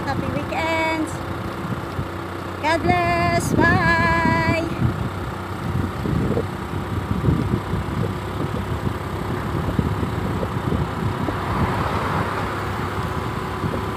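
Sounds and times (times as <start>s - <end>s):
road noise: 0.0s - 13.9s
wind buffeting microphone: 2.8s - 13.9s.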